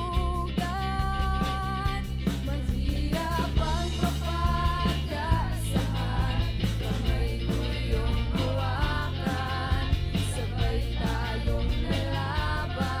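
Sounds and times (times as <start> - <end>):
band accompaniment with steady beat: 0.0 - 13.0
person singing a ballad: 0.0 - 13.0.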